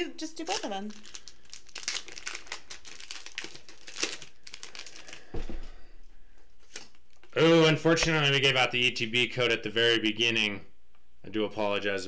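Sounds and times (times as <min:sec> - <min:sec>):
foil wrappers crinkling: 0:00.4 - 0:05.5, 0:06.6 - 0:07.4.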